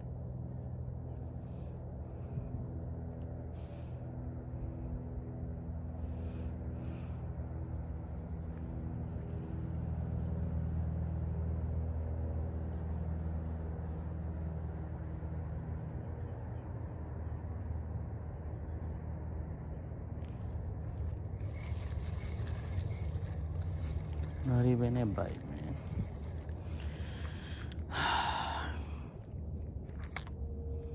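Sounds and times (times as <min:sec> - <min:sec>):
distant engine droning: 0:00.0 - 0:30.9.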